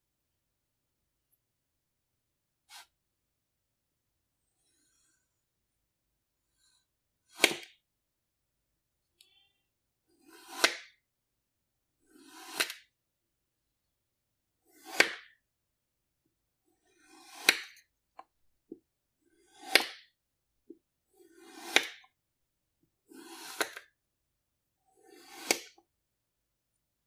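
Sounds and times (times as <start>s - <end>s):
knife slicing through kinetic sand: 2.6s - 3.0s, 6.5s - 7.8s, 10.1s - 11.1s, 12.0s - 13.0s, 14.6s - 15.4s, 16.6s - 17.9s, 19.2s - 20.2s, 21.0s - 22.2s, 23.0s - 24.0s, 24.8s - 25.8s.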